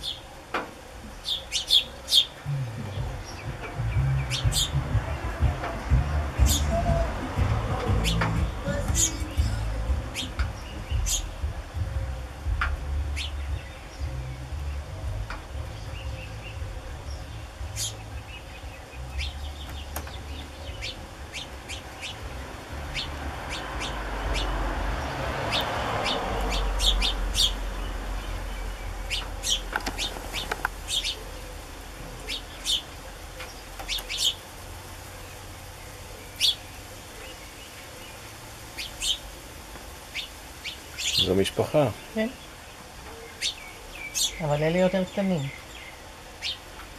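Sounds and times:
sparrows chirping: 0:00.0 - 0:46.9
low rumble: 0:02.4 - 0:21.2.

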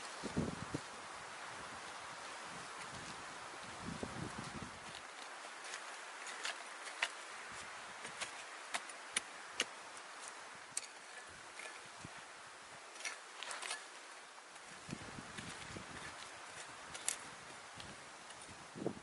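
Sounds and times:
faint outdoor hiss: 0:00.0 - 0:19.0
hand tool digging soil: 0:04.2 - 0:12.3, 0:12.9 - 0:18.6
blade clicking on stones: 0:10.7 - 0:11.8.

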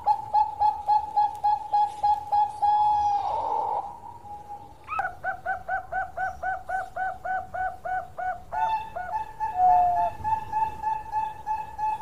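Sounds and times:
dove cooing: 0:00.0 - 0:12.0.

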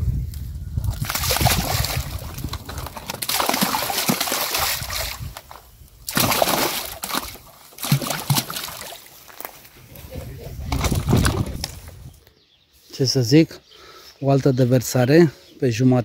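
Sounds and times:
fish splashing into water: 0:00.9 - 0:09.1.

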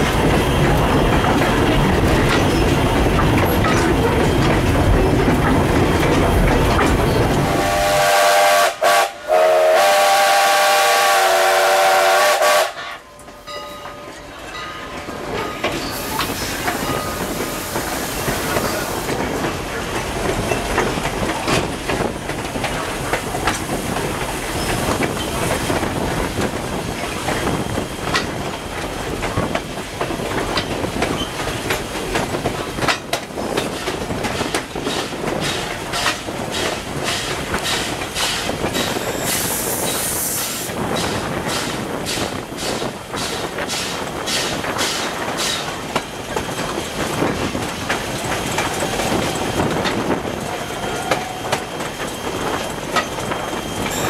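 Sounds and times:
wheels clicking over rail joints: 0:00.0 - 0:07.5, 0:12.7 - 0:40.0, 0:40.7 - 0:54.0
steam locomotive running: 0:00.0 - 0:54.0
steam hiss: 0:15.8 - 0:19.3, 0:34.4 - 0:45.9.

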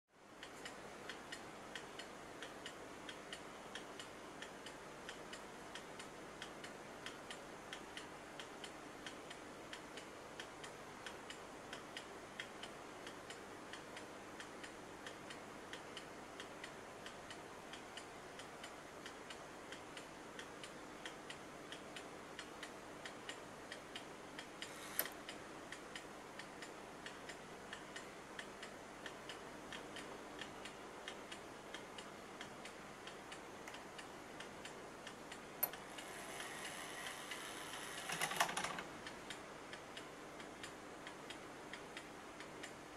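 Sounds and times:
clock ticking: 0:00.4 - 0:42.8
loud clock click: 0:24.4 - 0:25.4, 0:35.6 - 0:39.2.

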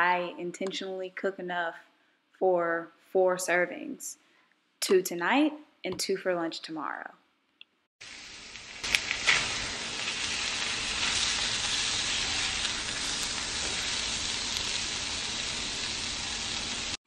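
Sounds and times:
fish sizzling in a skillet: 0:08.0 - 0:17.0.

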